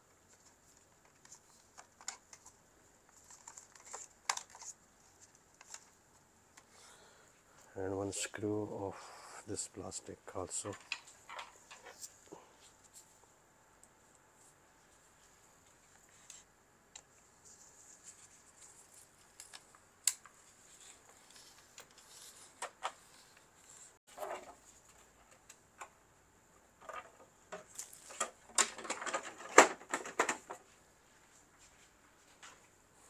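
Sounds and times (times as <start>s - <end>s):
plastic clatter: 26.8s - 30.6s.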